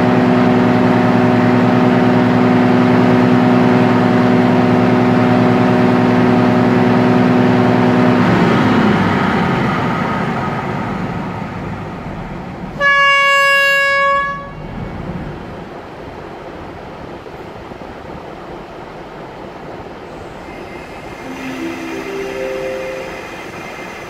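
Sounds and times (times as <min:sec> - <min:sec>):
diesel railcar engine revving: 0:00.0 - 0:12.8
train horn blast: 0:12.8 - 0:14.7.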